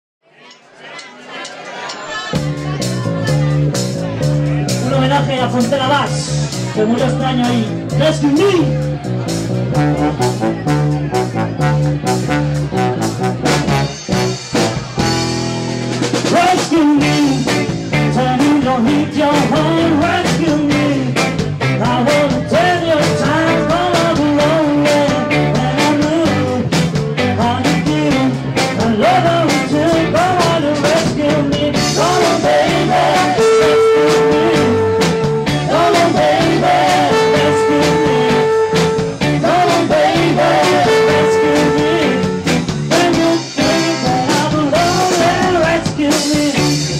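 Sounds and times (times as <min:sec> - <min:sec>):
drums: 0:01.0 - 0:46.9
live band playing: 0:02.1 - 0:46.9
electric guitar: 0:08.6 - 0:46.9
trombone: 0:09.7 - 0:16.6, 0:22.2 - 0:26.7, 0:31.8 - 0:45.8
lead singer singing: 0:16.2 - 0:46.9.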